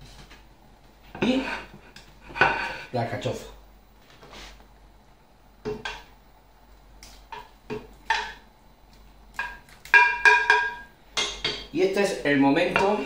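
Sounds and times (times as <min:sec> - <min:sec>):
dish knocking on metal pot: 0:07.3 - 0:08.4, 0:09.4 - 0:11.7.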